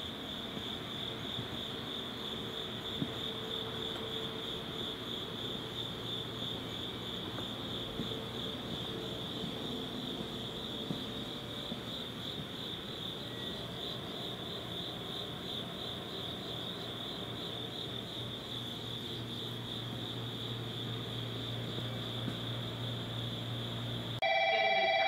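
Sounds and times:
night insects chirring: 0.0s - 25.0s.

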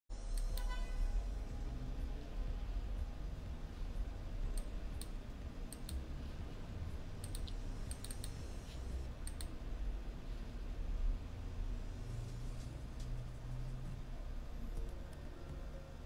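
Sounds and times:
low steady hum: 0.1s - 16.0s
faint sharp clicks: 7.2s - 8.4s, 9.2s - 9.5s.

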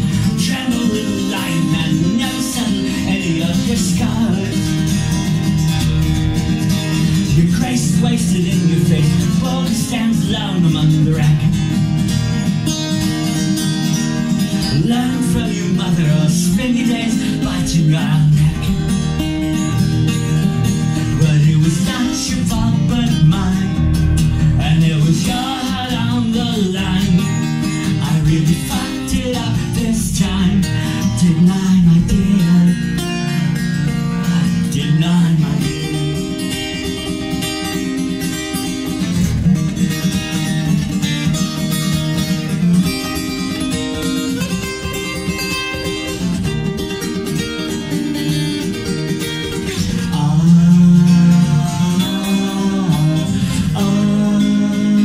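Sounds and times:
man singing wordlessly: 0.0s - 5.1s, 7.1s - 11.8s, 14.6s - 36.9s, 49.5s - 55.0s
acoustic guitar strumming: 0.0s - 55.0s.

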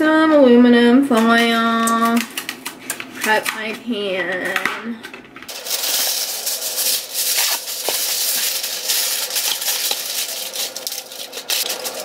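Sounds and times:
aluminum foil crinkling: 5.5s - 12.0s.

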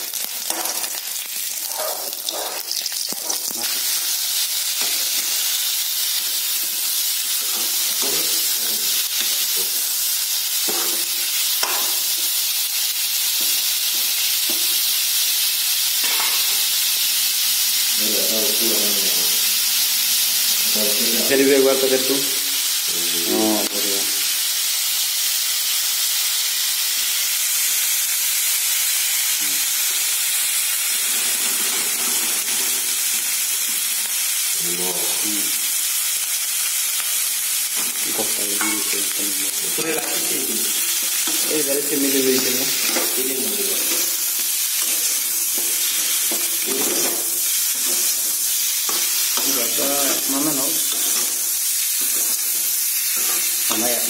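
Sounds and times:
meat sizzling in hot oil: 0.0s - 54.0s
spatula stirring in wok: 50.8s - 53.8s.

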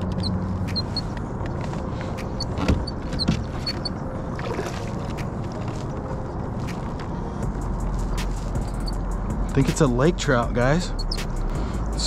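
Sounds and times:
water sloshing against kayak: 1.5s - 7.4s.

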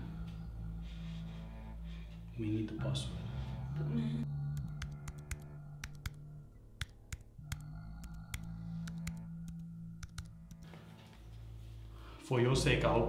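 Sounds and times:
low music drone: 0.0s - 13.0s
laptop keyboard clicking: 4.6s - 6.2s, 6.8s - 10.7s.

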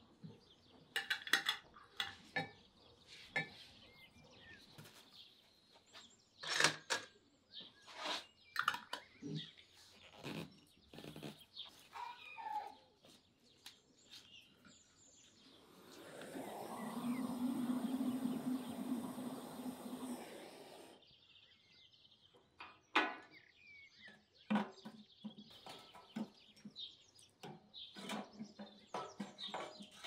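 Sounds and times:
steady noise: 15.5s - 21.0s.

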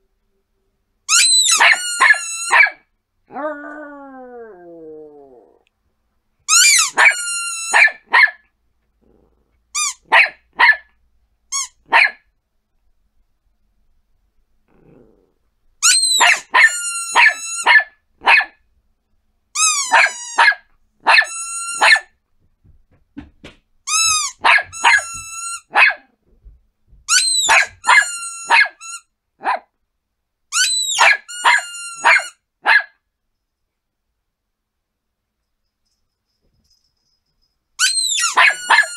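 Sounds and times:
dog barking high-pitched yaps: 1.1s - 2.9s, 6.5s - 8.5s, 9.8s - 10.9s, 11.6s - 12.3s, 15.8s - 18.6s, 19.6s - 22.2s, 24.0s - 26.1s, 27.1s - 29.7s, 30.6s - 33.0s, 37.8s - 38.9s.

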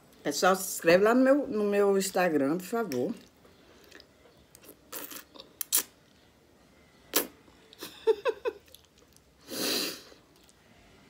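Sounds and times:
squeaky mouth sounds: 4.6s - 6.0s.

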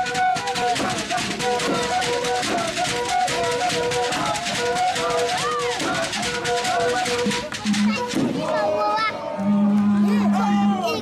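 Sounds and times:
fast hand drumming: 0.0s - 8.4s
held pitched notes: 0.0s - 8.4s.

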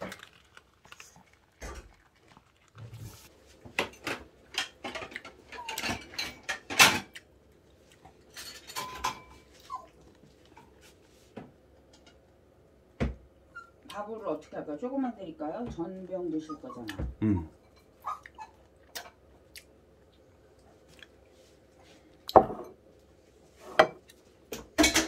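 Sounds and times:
dishes and cutlery clattering: 3.8s - 7.1s, 8.3s - 9.5s, 23.7s - 25.0s.

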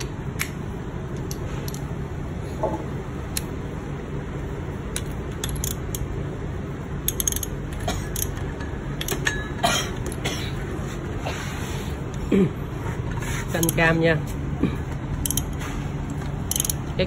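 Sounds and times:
steady low hum: 0.0s - 17.0s
socket ratchet clicking: 4.9s - 6.1s, 7.0s - 9.3s, 15.2s - 16.9s.

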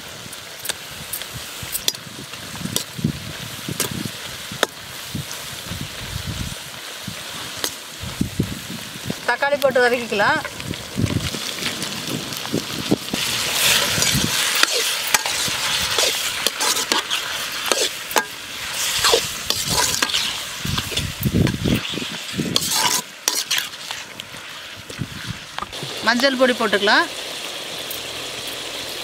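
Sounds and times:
vegetables sizzling in oil: 0.0s - 29.0s
skimmer scraping a pan: 13.2s - 24.2s.

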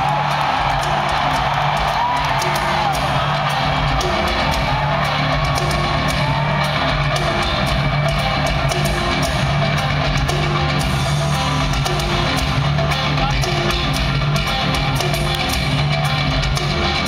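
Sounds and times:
live metal band playing loudly: 0.0s - 17.0s.

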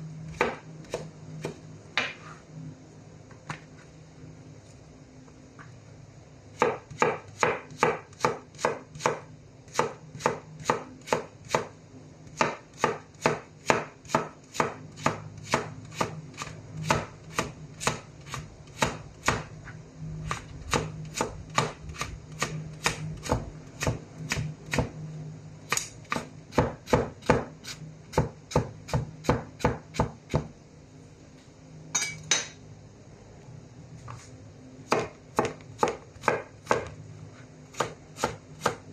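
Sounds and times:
knife chopping on cutting board: 0.3s - 2.2s, 6.6s - 11.7s, 12.4s - 19.5s, 20.3s - 24.9s, 25.7s - 27.5s, 28.1s - 30.5s, 34.9s - 37.0s, 37.7s - 38.8s.

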